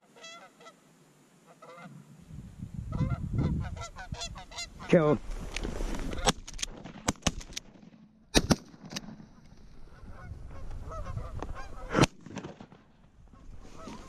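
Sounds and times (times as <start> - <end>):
geese honking: 0.0 - 0.8, 1.5 - 2.0, 2.9 - 5.1, 9.3 - 12.0
shotgun shots: 8.3 - 9.2, 11.9 - 12.9.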